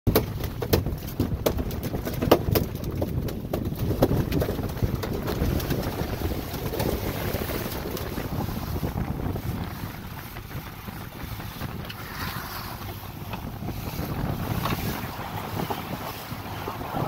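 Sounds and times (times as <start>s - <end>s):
knocks on a boat deck: 0.1s - 4.4s
boat noise: 0.1s - 17.0s
low rumble of wind: 0.1s - 17.0s.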